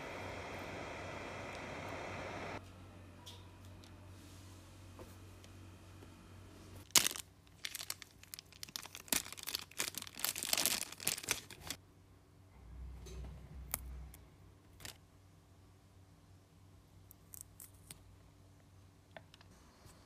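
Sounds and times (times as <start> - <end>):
plastic zip bag crinkling: 6.8 - 11.8.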